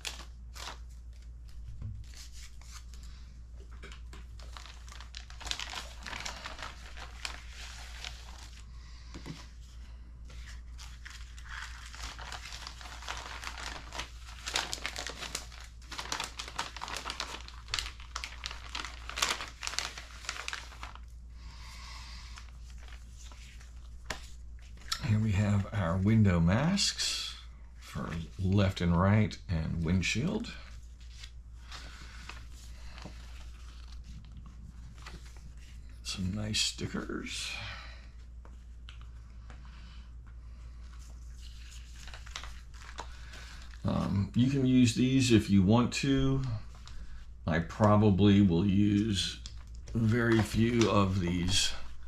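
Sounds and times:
paper sheets handled: 0.0 - 21.2, 22.4 - 26.3, 29.7 - 36.3, 40.7 - 44.6, 47.7 - 52.0
plastic bag crinkling: 3.8 - 8.6, 10.4 - 21.2, 40.9 - 45.3, 46.3 - 52.0.

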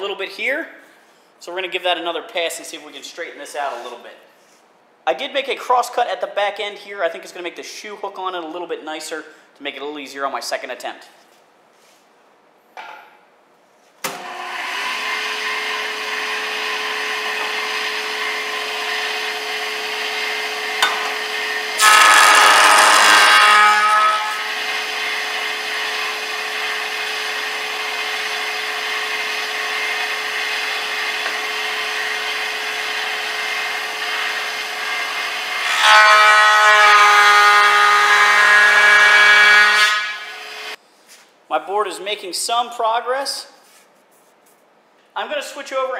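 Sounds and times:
cutter head cutting wood: 14.1 - 35.6
jointer motor hum: 14.2 - 35.6.

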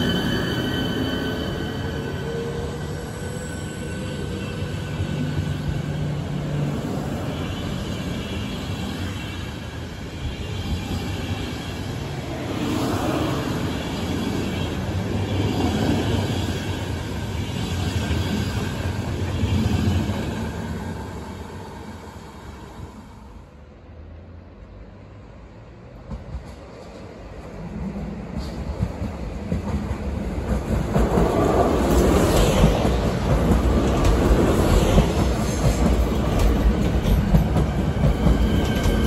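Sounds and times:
train coaches rolling on rails: 0.0 - 22.1, 25.8 - 39.0.

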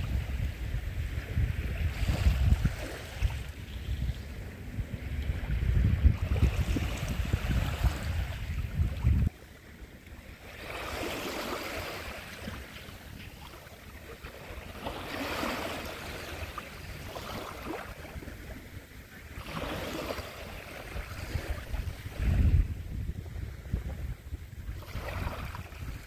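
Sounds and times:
wind rumble on microphone: 0.0 - 26.0
waves lapping on pebbles: 10.2 - 18.4, 19.3 - 22.5.

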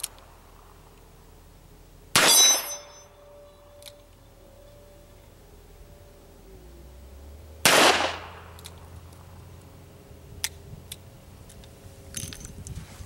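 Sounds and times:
revolver gunshot with echo: 2.1 - 3.0, 7.6 - 8.5.

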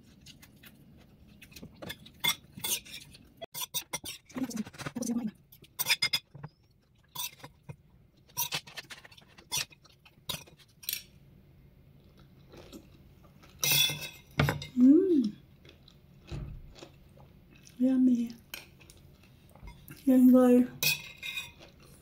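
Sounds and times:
metal spoon scraping a plate: 2.2 - 5.0, 13.6 - 14.3, 20.8 - 21.6
chewing raw vegetables: 15.3 - 17.8.

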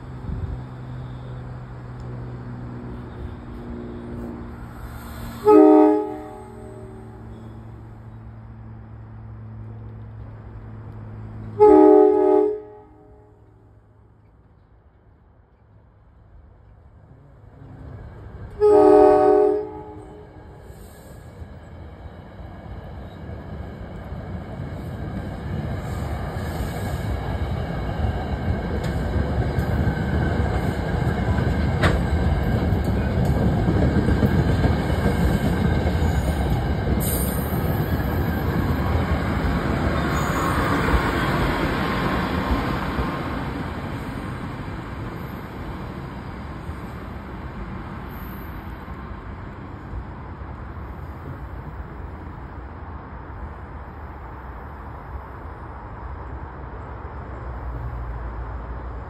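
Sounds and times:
faint high wheel squeal: 0.7 - 1.6, 2.9 - 5.5, 7.1 - 7.8, 39.8 - 41.6, 48.1 - 48.8
train wheels rumbling on rails: 13.4 - 59.0.

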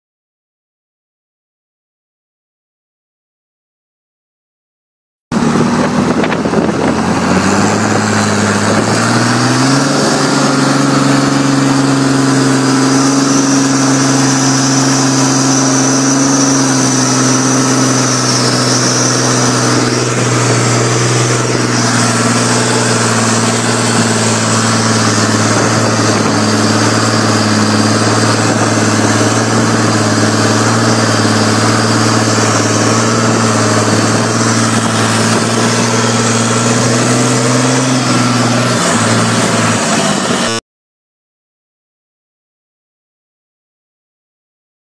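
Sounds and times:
tractor diesel engine: 5.3 - 40.6.

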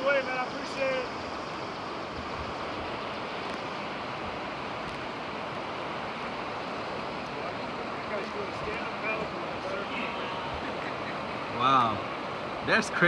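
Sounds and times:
whitewater rushing: 0.0 - 13.0.

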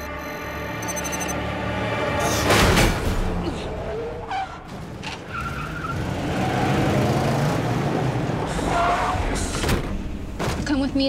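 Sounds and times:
tyres skidding: 2.3 - 11.0.

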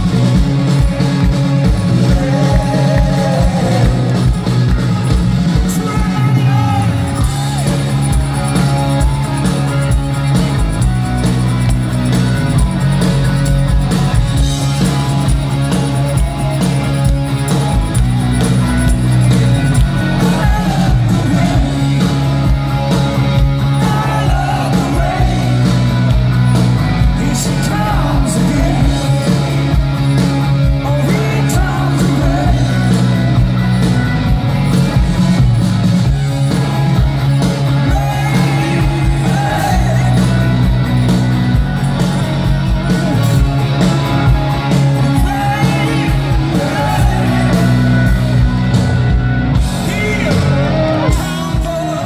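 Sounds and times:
bass guitar: 0.0 - 52.0
drums: 0.0 - 52.0
electric guitars: 0.0 - 52.0
man singing lead vocals: 1.7 - 4.5, 5.5 - 9.3, 19.7 - 22.5, 23.5 - 29.8, 30.5 - 33.5, 37.6 - 41.0, 44.6 - 48.7, 49.6 - 52.0.

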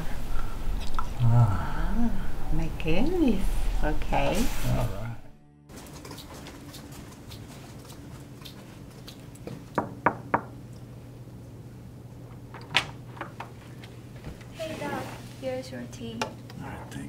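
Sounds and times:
low steady hum: 0.0 - 17.0
faint footsteps: 3.4 - 9.8
knocks on wooden door: 9.8 - 10.5.

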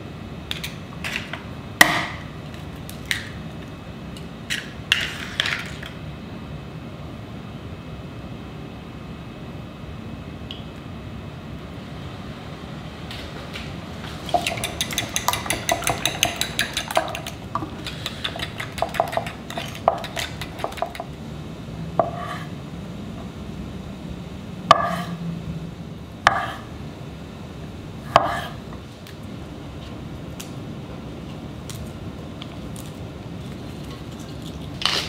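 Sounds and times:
steady low hum: 0.0 - 35.0
utensils clinking on ceramic: 14.3 - 17.4.

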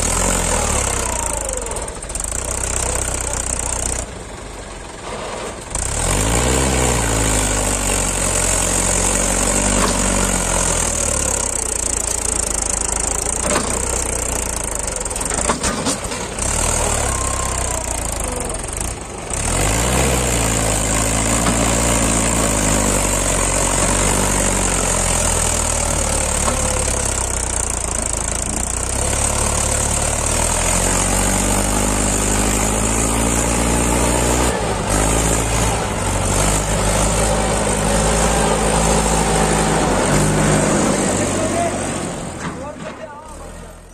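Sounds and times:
diesel tractor engine under load: 0.0 - 43.9.

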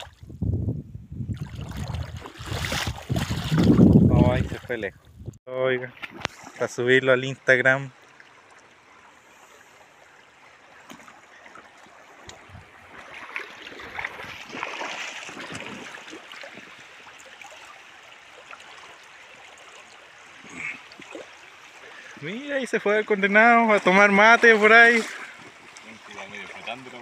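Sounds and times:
water splashing and sloshing: 0.0 - 0.4, 1.2 - 27.0
river water over stones: 5.8 - 27.0.

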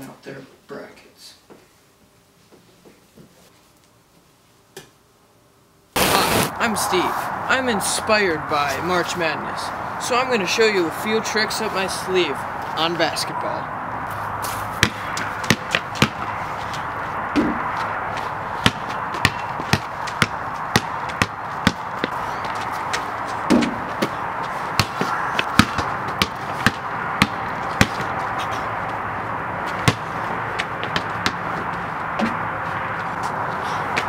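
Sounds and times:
background hiss: 0.0 - 10.1
basketball bouncing on concrete: 14.8 - 17.9, 18.6 - 29.0, 29.7 - 32.5.

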